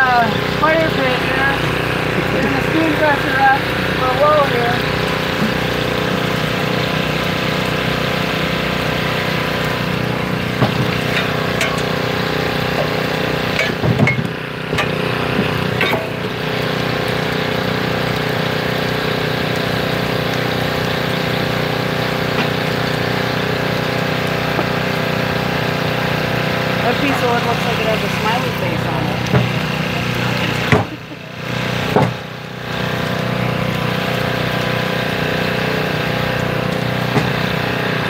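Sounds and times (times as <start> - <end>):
engine idling: 0.0 - 38.0
wooden knocks of logs: 10.6 - 11.8, 13.6 - 16.1, 29.2 - 29.7, 30.6 - 31.0, 31.9 - 32.3, 37.1 - 37.5.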